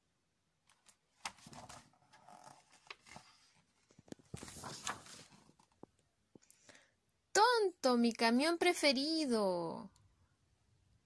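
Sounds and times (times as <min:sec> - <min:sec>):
book page turning: 0:00.7 - 0:06.0
paper rustling: 0:00.7 - 0:06.0.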